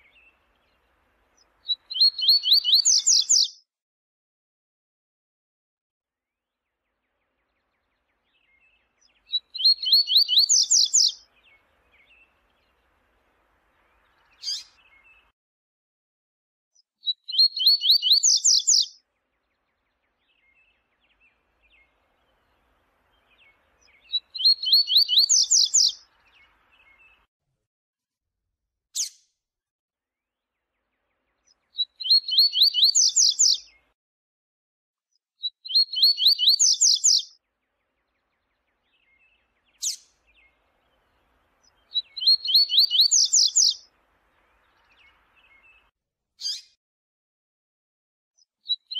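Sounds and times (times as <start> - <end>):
bird singing rising notes: 1.7 - 3.5, 7.7 - 12.7, 17.3 - 18.9, 23.1 - 27.2, 31.7 - 33.7, 35.7 - 37.3, 38.3 - 43.8.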